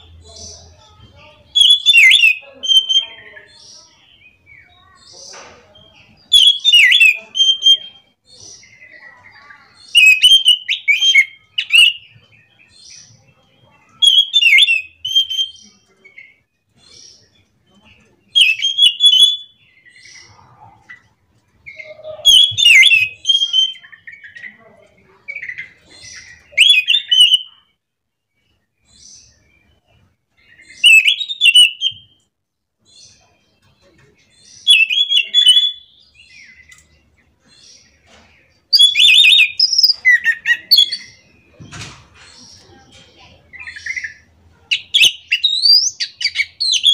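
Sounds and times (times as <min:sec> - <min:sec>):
soft bird twittering: 0:00.0 - 0:32.2, 0:32.8 - 0:46.9
thrush whistling song: 0:09.9 - 0:12.1, 0:18.4 - 0:19.6, 0:21.7 - 0:24.4, 0:26.3 - 0:27.5, 0:30.6 - 0:32.2, 0:34.6 - 0:36.8, 0:38.7 - 0:41.2.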